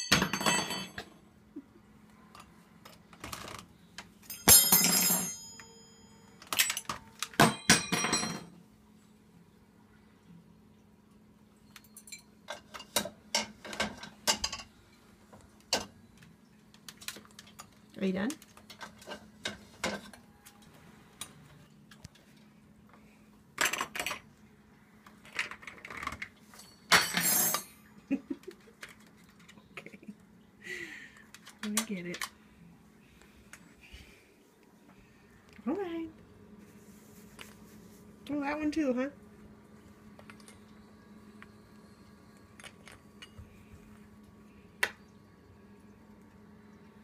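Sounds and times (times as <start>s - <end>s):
metal cutlery clattering on tile: 0.0s - 1.1s, 4.3s - 5.7s, 6.4s - 8.6s, 11.9s - 14.7s, 25.4s - 27.8s
sharp metal clink: 4.3s - 8.5s
steady low hum: 26.4s - 47.0s.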